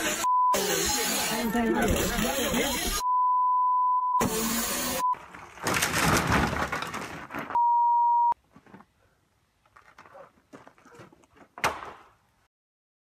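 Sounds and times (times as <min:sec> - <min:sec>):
censor bleep: 0:00.2 - 0:00.6, 0:03.0 - 0:04.3, 0:07.6 - 0:08.4.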